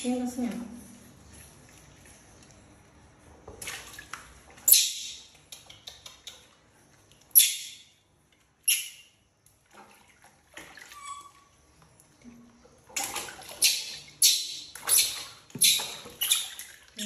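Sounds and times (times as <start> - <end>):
water sloshing: 3.3 - 5.4, 9.5 - 17.0
water splashing in plastic basin: 3.4 - 5.6, 9.5 - 17.0.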